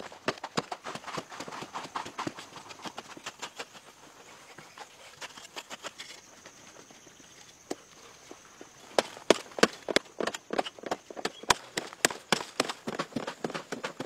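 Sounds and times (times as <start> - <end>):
digging tool chopping dry earth: 8.8 - 14.0.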